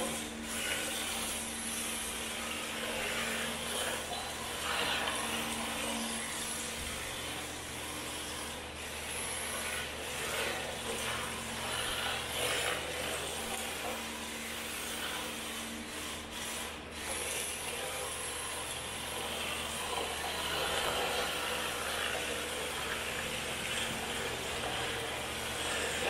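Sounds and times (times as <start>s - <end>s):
toy car motor running: 0.0s - 26.0s.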